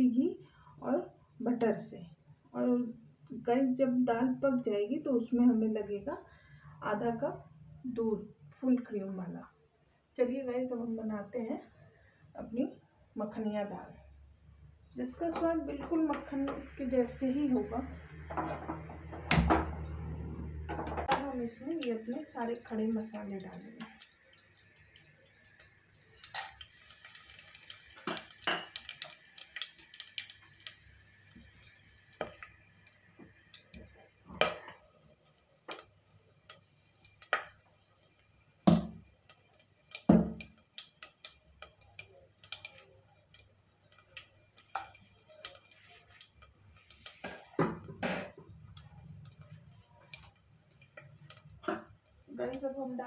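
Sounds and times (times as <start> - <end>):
faint sizzle: 0.0 - 53.0
spices popping in hot fat: 21.1 - 53.0.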